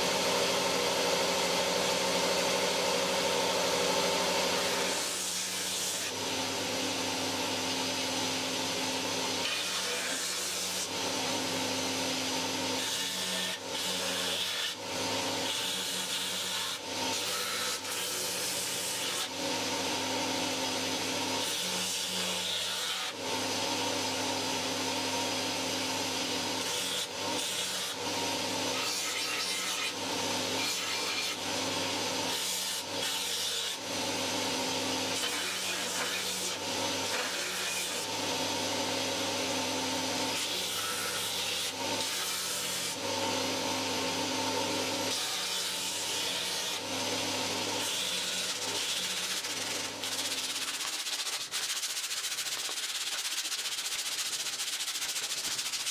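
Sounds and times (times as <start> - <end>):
belt grinder motor hum: 46.8 - 51.6
belt sanding wood: 48.0 - 55.9.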